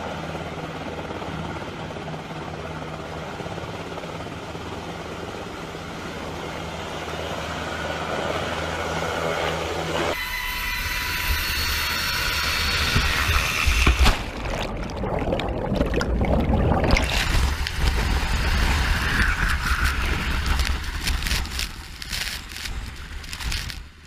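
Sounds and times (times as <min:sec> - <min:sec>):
ocean water splashing: 0:14.0 - 0:23.7.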